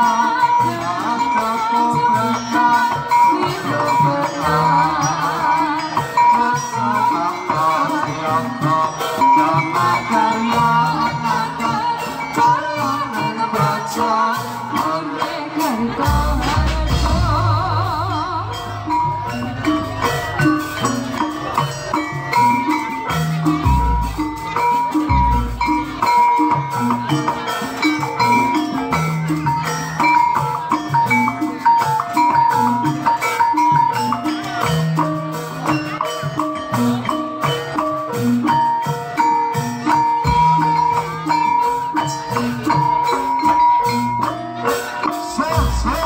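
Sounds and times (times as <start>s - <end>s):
gamelan music: 0.0s - 46.0s
high melody long notes: 0.0s - 46.0s
drum and gong strokes: 15.8s - 27.5s.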